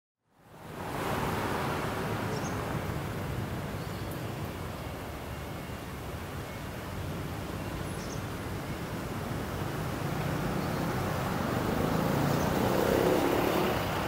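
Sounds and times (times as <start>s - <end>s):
vehicle driving past: 9.8s - 14.0s.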